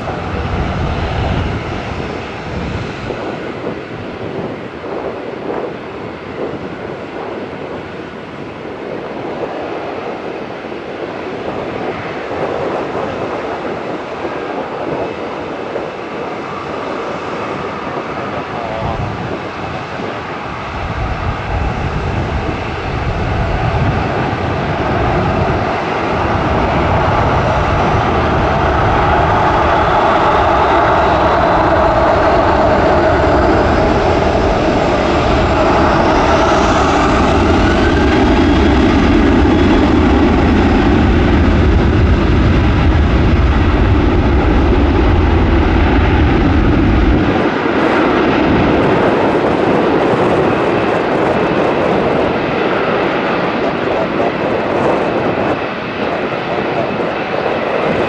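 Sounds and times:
jet engine rising whine: 0.0s - 58.0s
jet engines running: 0.0s - 58.0s
deep rumble: 20.3s - 52.5s.

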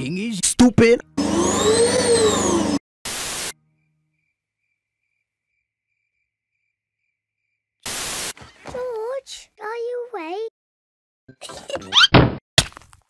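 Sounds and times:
loud burst of hiss: 3.1s - 3.5s, 7.8s - 8.4s
faint crickets chirping: 3.6s - 7.8s.

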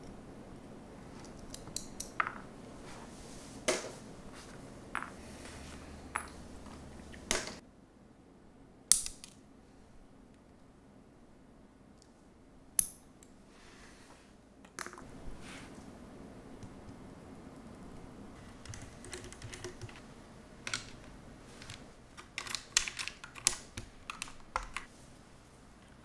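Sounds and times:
small hard parts clicking on desk: 18.4s - 24.9s.

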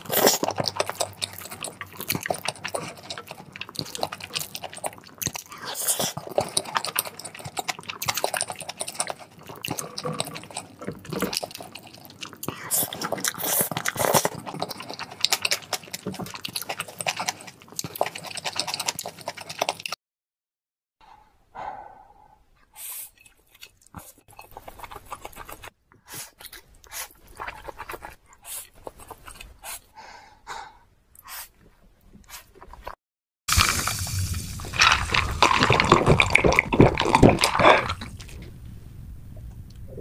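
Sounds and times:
slurping and chewing noodles: 0.0s - 20.0s, 22.6s - 38.6s
breathy sucks and smacks: 33.5s - 38.6s.

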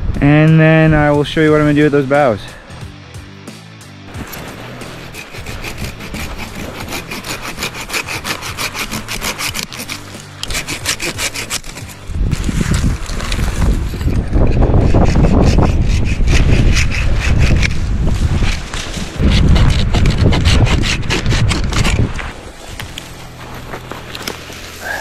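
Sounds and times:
saw cutting branch: 4.1s - 25.0s
wind buffeting microphone: 11.8s - 23.0s.

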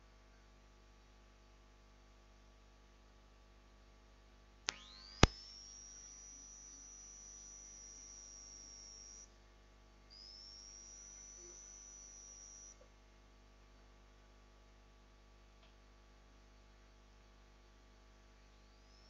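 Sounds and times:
sharp clicks: 4.7s - 5.9s
high-pitched electronic whine: 4.7s - 9.4s, 10.1s - 12.8s, 18.5s - 19.0s.

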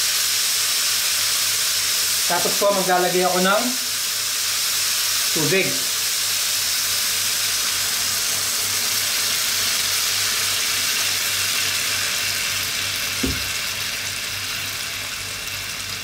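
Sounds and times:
water hissing in a hot wok: 0.0s - 16.0s
soft knock: 13.2s - 13.5s.

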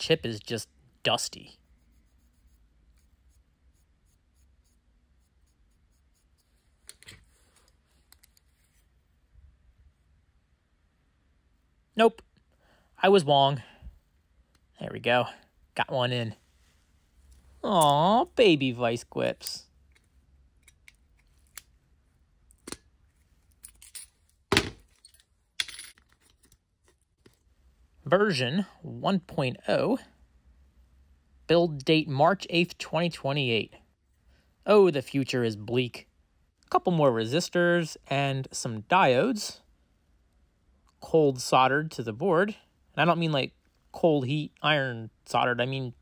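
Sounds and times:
swab scratching on circuit board: 1.6s - 6.6s
handling click and rustle: 22.5s - 27.5s.

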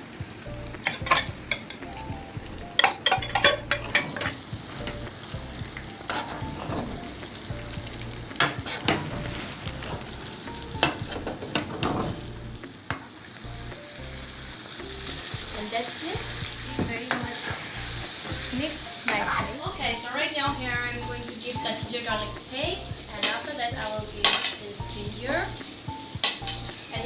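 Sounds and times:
food sizzling in a wok: 0.0s - 27.0s
metal utensil scraping a pan: 0.8s - 13.2s, 16.1s - 19.7s.

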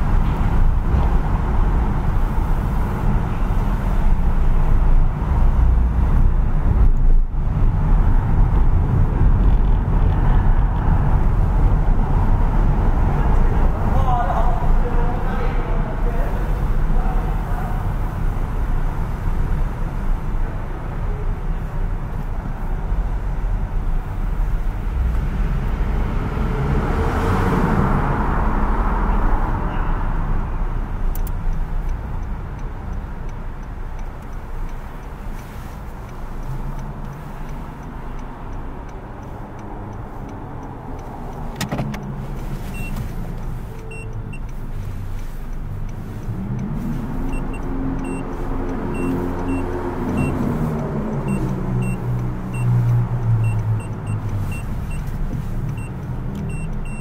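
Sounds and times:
car driving slowly from inside: 0.0s - 57.0s.

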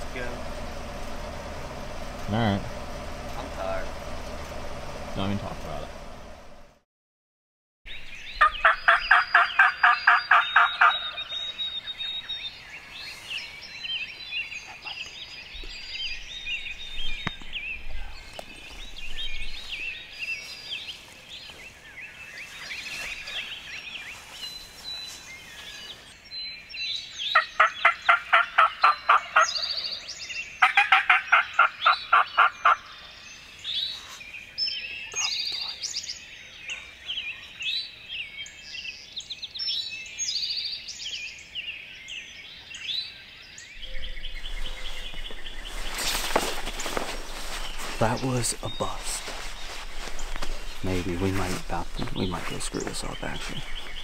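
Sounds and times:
songbirds chirping: 0.0s - 6.8s, 7.9s - 54.0s
turkey gobbling: 8.4s - 11.4s, 27.4s - 29.7s, 30.6s - 33.0s.

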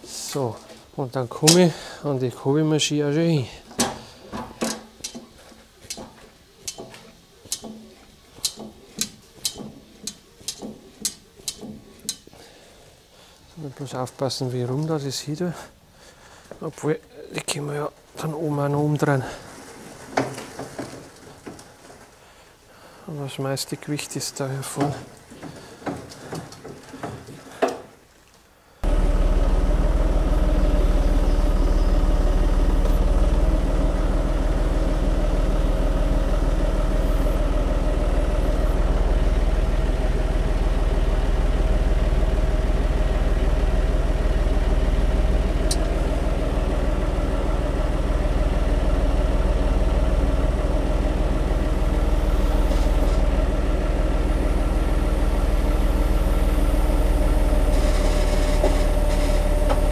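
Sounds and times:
tractor engine running: 3.6s - 12.4s, 28.8s - 59.9s
light knocks: 3.7s - 12.3s.

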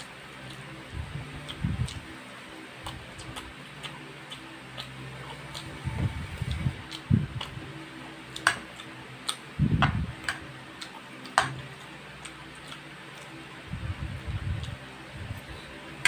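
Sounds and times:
low muffled thumps: 9.6s - 10.1s.

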